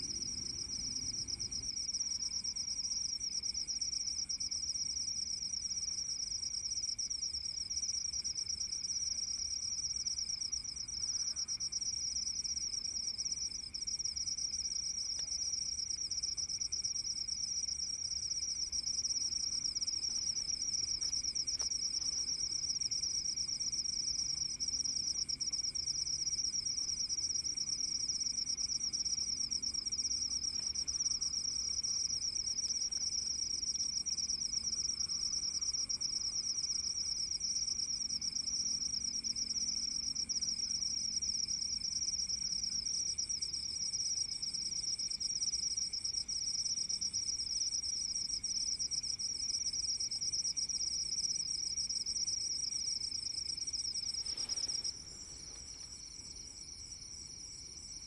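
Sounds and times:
crickets trilling: 0.0s - 58.0s.

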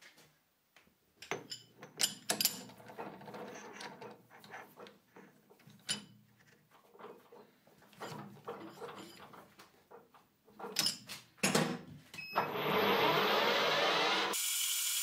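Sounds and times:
metal clinks and knocks: 1.2s - 6.2s, 6.9s - 11.6s.

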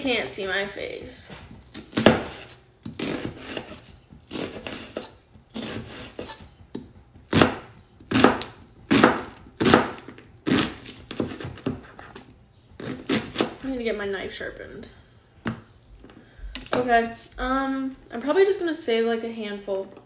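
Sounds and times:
knife chopping onion on board: 1.5s - 13.6s.

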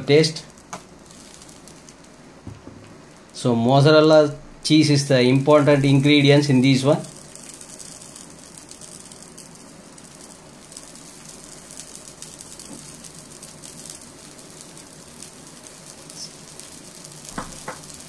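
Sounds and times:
bread sizzling in a pan: 0.0s - 18.0s.

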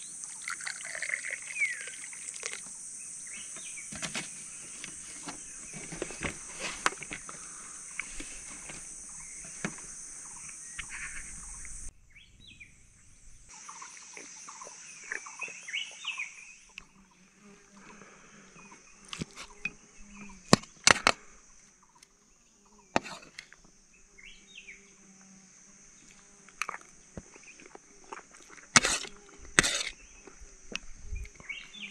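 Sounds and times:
birds chirping: 0.0s - 23.0s, 29.9s - 31.9s
insects droning: 0.0s - 31.9s.

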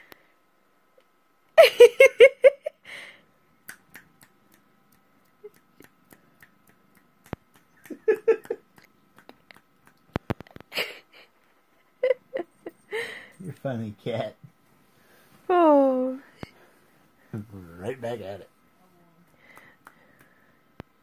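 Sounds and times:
person laughing quietly: 7.6s - 9.8s, 10.4s - 13.3s.

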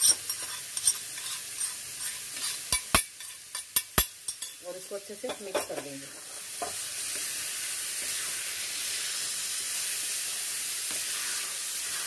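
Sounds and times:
spatula scraping a pan: 0.0s - 4.5s, 8.0s - 8.5s, 10.8s - 12.0s
food sizzling in a pan: 0.0s - 12.0s.

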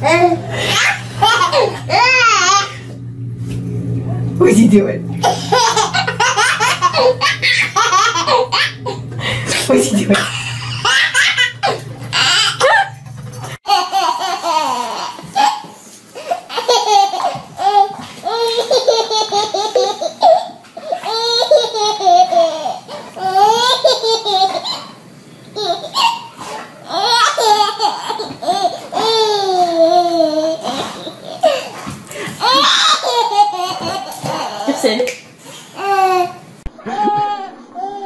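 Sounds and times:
baby laughing: 0.0s - 2.8s, 5.2s - 25.0s, 25.6s - 35.1s, 35.8s - 38.0s.

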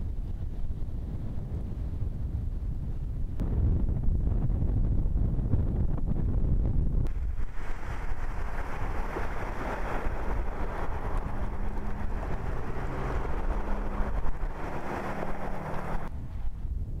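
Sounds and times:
wind buffeting microphone: 0.0s - 17.0s
engine hum: 7.0s - 17.0s
tyres splashing through water: 7.1s - 16.1s.

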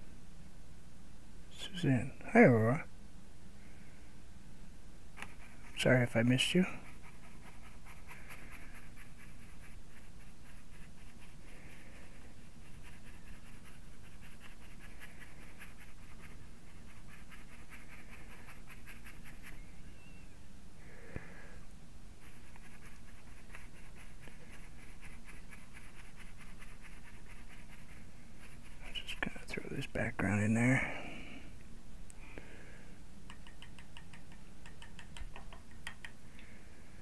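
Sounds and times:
foam dauber tapping paint: 33.3s - 36.2s.

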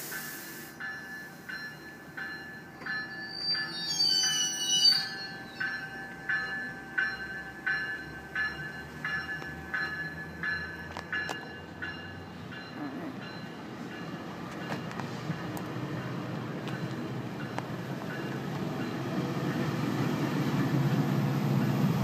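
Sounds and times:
train wheels rumbling on rail: 0.0s - 22.0s
bell ringing: 0.8s - 14.8s.

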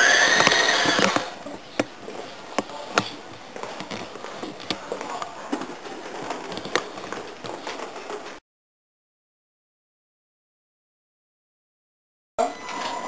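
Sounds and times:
toy truck motor whining: 0.0s - 1.4s
sharp clicks and knocks: 0.3s - 8.3s.

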